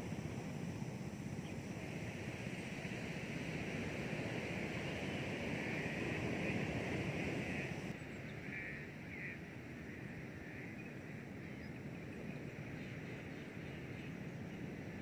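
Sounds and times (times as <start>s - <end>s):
continuous rushing noise: 0.0s - 15.0s
high steady hiss: 0.0s - 15.0s.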